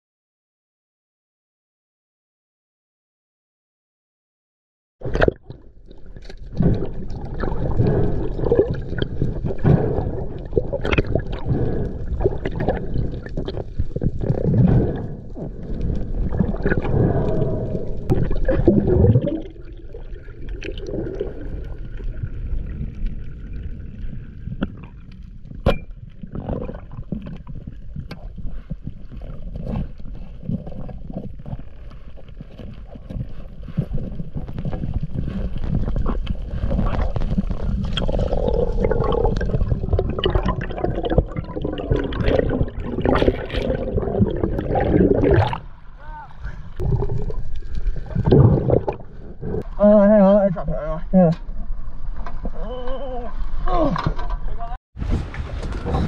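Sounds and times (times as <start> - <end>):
water rushing underwater: 5.0 - 49.8.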